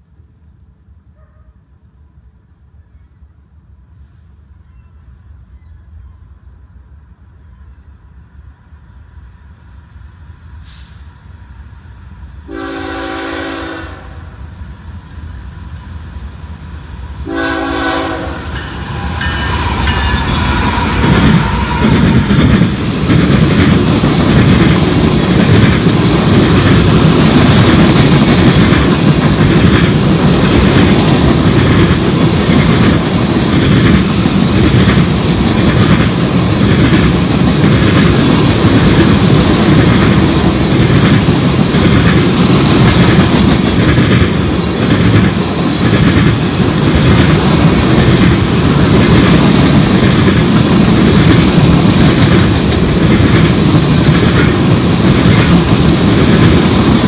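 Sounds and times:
freight train rumble: 0.0 - 57.0
train horn blasts: 12.4 - 14.4, 17.2 - 22.4
wheels clacking on rails: 17.2 - 57.0.

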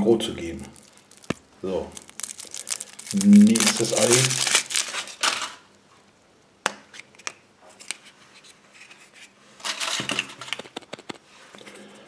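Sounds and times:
foil crinkling burst: 0.6 - 5.6
foil wrapper rustling: 0.6 - 5.6.

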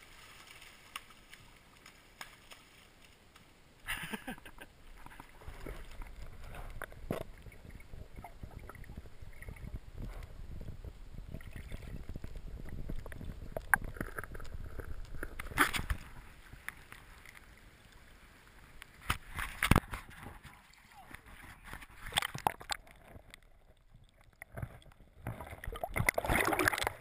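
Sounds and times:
small crackles: 0.0 - 27.0
muffled underwater river churning: 4.5 - 27.0
dense low rumble: 5.5 - 16.3.

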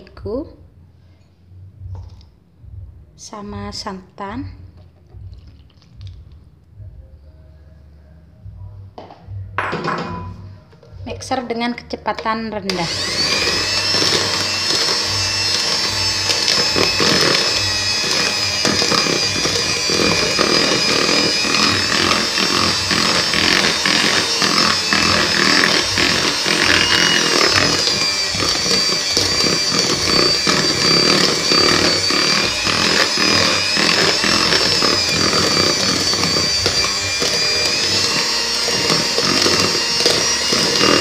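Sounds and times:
beaters churning thick batter: 12.2 - 41.0
hand mixer motor whining: 12.7 - 41.0.

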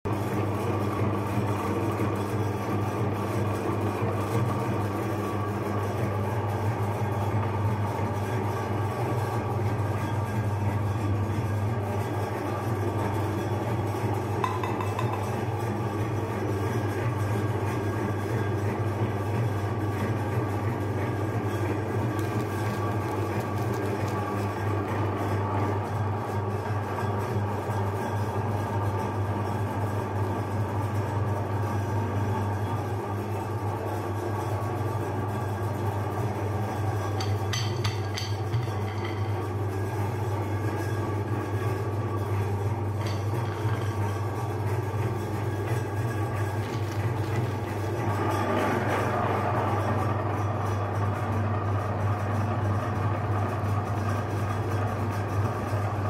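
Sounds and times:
meat grinder motor humming: 0.1 - 56.0
dishes clinking: 14.4 - 15.5, 37.2 - 39.5, 43.0 - 44.0.

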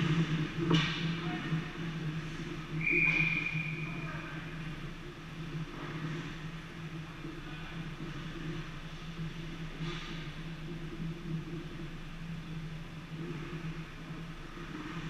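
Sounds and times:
low hum of rink: 0.0 - 15.0
referee's whistle blast: 2.8 - 3.8.

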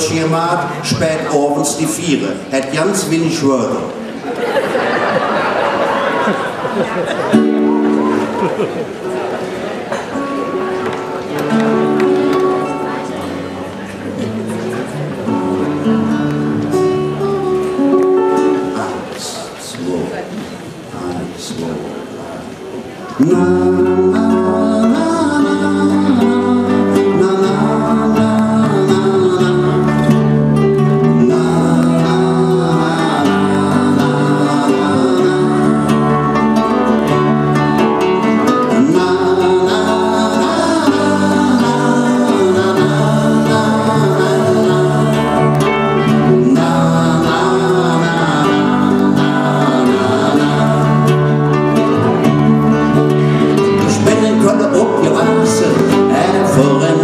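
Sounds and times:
acoustic guitars strummed: 0.0 - 19.7, 23.2 - 57.0
men singing: 23.2 - 57.0
bass guitar: 23.3 - 57.0.

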